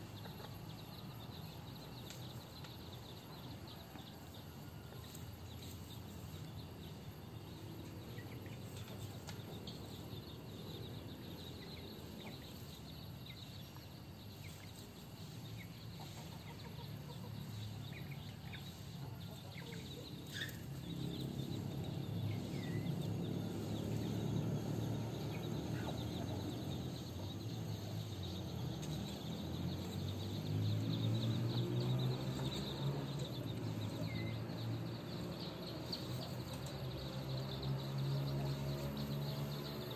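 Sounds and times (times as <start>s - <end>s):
chicks peeping: 0.1s - 39.9s
chickens clucking: 14.4s - 27.8s.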